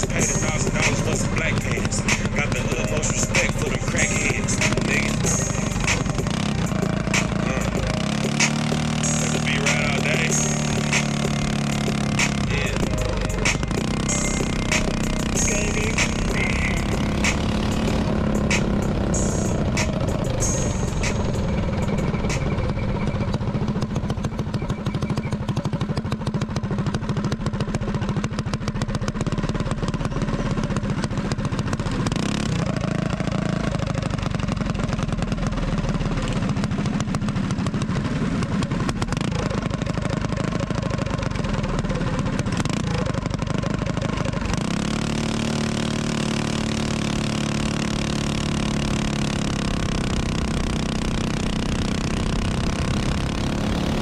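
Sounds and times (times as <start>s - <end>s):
minibike engines running: 0.0s - 54.0s.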